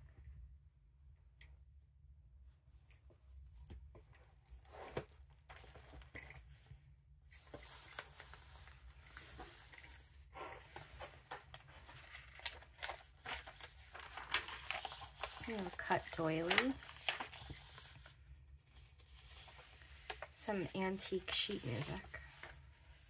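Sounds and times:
pages turning: 7.3 - 23.0
rustling ribbon and paper: 7.3 - 23.0.

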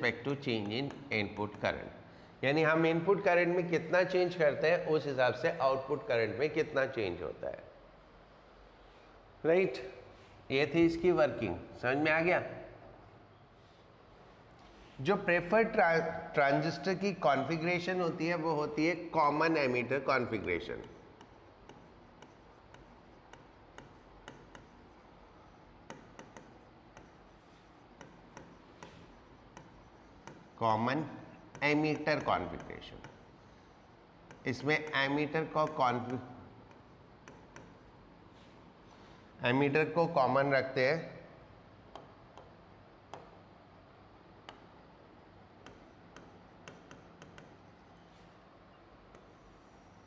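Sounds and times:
chalk tapping and scratching: 0.1 - 1.8, 16.5 - 39.0, 45.5 - 50.0.

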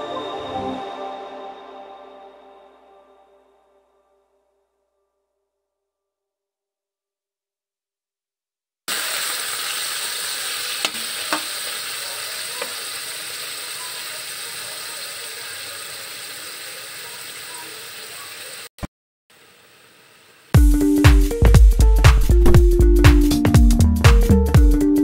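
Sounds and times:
meat sizzling in a wok: 8.9 - 18.7.

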